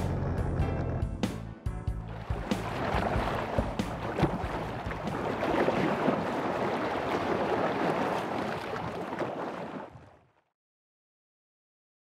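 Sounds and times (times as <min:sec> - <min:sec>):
water lapping and splashing: 0:02.1 - 0:10.5.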